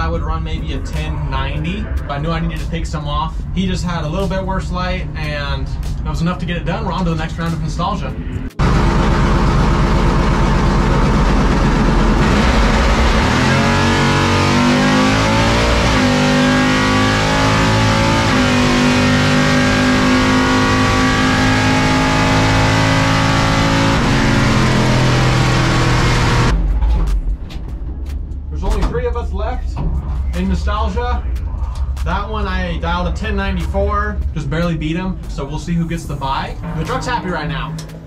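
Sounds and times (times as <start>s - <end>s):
drag truck engine accelerating: 8.4s - 27.2s.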